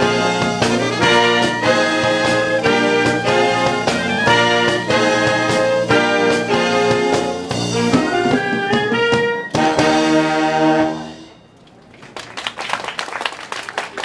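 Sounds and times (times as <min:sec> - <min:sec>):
wind band playing: 0:00.0 - 0:11.9
audience applause: 0:11.8 - 0:14.0.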